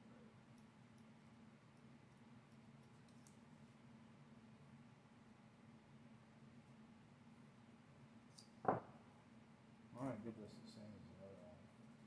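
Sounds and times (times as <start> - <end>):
faint clicks of small parts: 0.4 - 3.8, 8.3 - 8.6.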